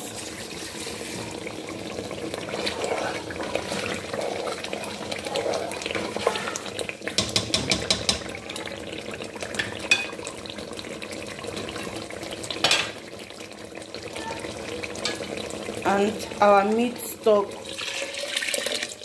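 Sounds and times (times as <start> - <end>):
stew bubbling: 0.0 - 16.5
spoon scraping metal pot: 2.6 - 8.1.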